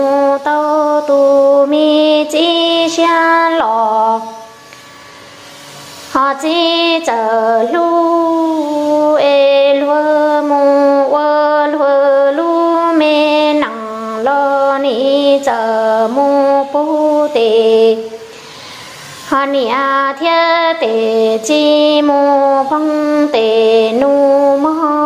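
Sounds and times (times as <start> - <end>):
woman singing solo: 6.1 - 18.3, 19.3 - 25.0
breaths: 18.2 - 19.1.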